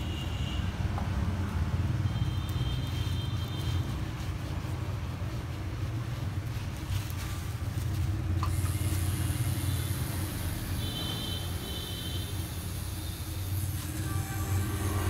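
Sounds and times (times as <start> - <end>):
tattoo machine buzzing: 8.4 - 15.0.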